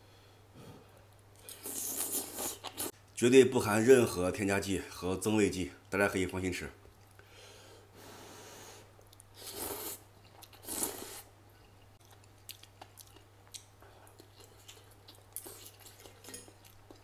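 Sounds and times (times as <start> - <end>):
person chewing: 1.3 - 3.0, 9.0 - 11.3, 12.0 - 17.0
person slurping noodles: 1.5 - 2.9, 9.4 - 10.0, 10.6 - 11.3.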